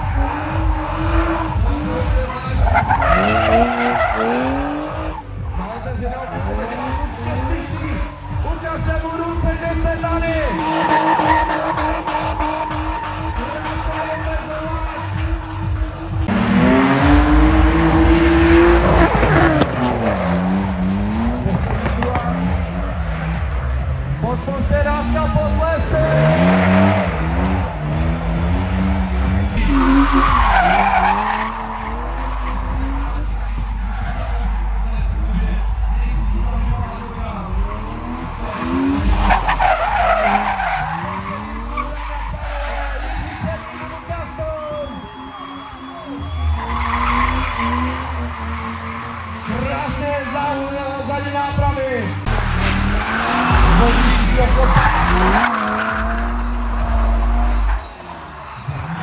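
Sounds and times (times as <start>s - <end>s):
tyres squealing: 0.0s - 8.3s, 10.5s - 16.1s, 25.8s - 35.5s, 37.7s - 51.3s, 52.2s - 58.6s
car engine revving hard: 0.0s - 8.5s, 10.0s - 44.4s, 45.0s - 51.1s, 52.2s - 57.9s.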